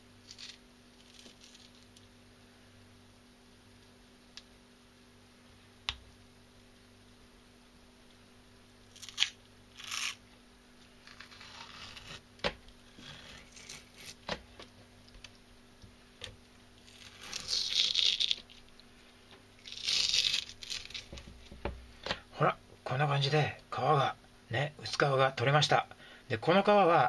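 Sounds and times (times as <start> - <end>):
fish skin tearing and scraping: 8.9 - 10.2, 11.0 - 12.2, 16.8 - 18.7, 19.6 - 21.2.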